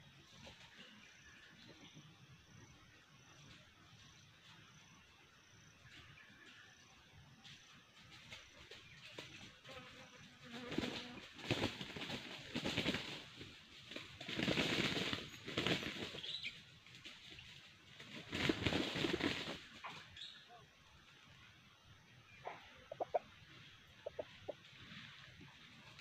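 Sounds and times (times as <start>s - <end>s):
chickens scratching in dry leaves: 8.1s - 20.0s.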